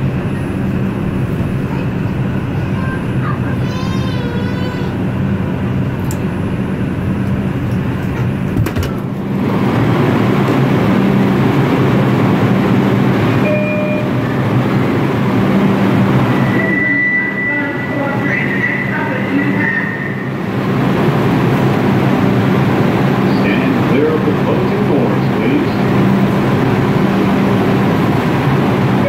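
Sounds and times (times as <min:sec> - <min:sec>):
loud rush of noise: 0:00.0 - 0:17.5, 0:18.4 - 0:29.0
low motor hum: 0:00.0 - 0:18.2
subway train braking: 0:00.0 - 0:29.0.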